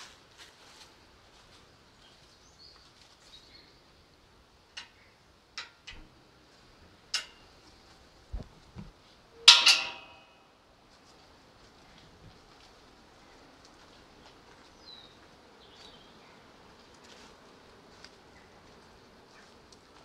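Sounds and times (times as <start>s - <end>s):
footsteps: 0.0s - 3.4s, 7.6s - 9.0s, 10.9s - 16.0s, 16.7s - 20.0s
metal gate clanging: 5.6s - 6.2s, 7.1s - 7.6s, 9.4s - 10.6s.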